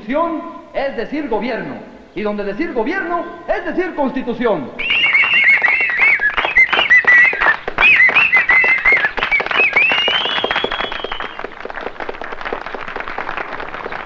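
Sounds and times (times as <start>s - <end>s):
crowd shrill cries: 4.8s - 11.4s
whistle: 4.8s - 11.5s.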